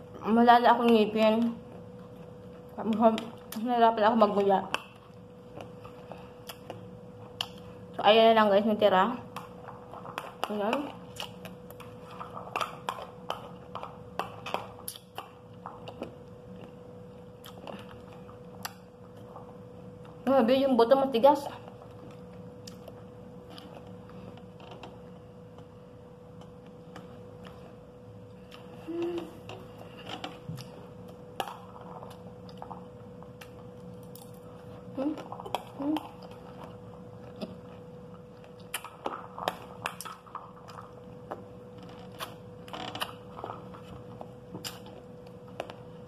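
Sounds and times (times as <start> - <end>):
faint steady hum: 0.0 - 46.0
chewing and crunching seeds: 9.3 - 20.2, 29.7 - 45.9.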